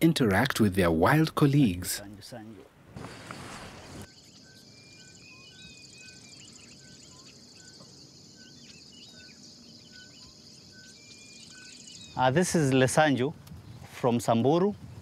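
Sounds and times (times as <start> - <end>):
birds chirping: 0.0 - 15.0
rustling noise: 2.8 - 4.1
high-pitched insect drone: 4.1 - 12.4.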